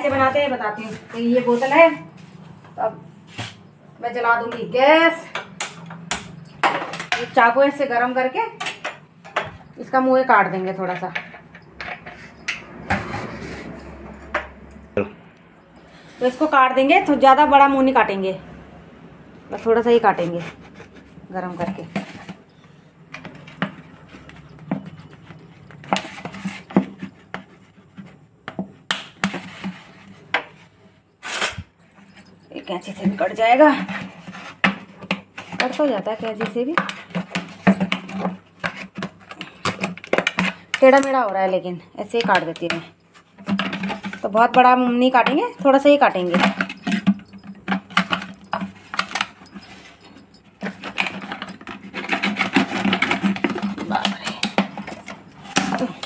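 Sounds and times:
knife scraping plastic: 0:50.6 - 0:56.0.

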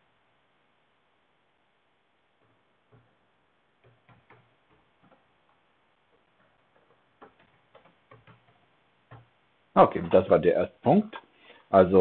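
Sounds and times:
keyboard typing clicks: 0:03.8 - 0:05.2, 0:06.4 - 0:09.3.

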